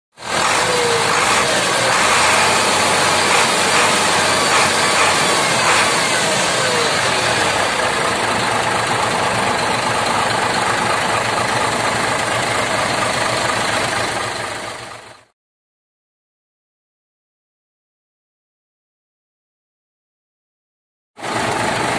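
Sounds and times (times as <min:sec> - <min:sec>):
turbocharger whine: 0:00.2 - 0:10.4
diesel truck engine running: 0:00.2 - 0:15.3, 0:21.2 - 0:21.9.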